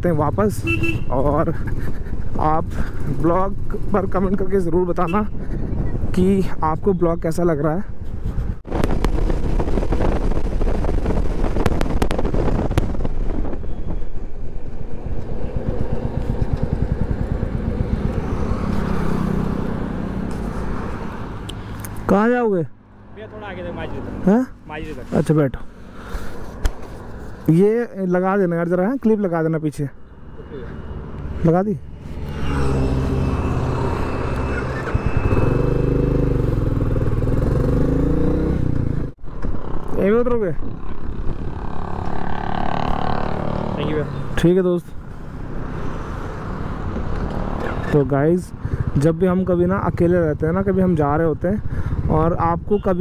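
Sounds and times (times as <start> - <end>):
motorcycle engine running: 14.5 - 20.5
motorcycle engine pulling away: 14.7 - 20.3, 32.1 - 39.9, 40.9 - 44.0.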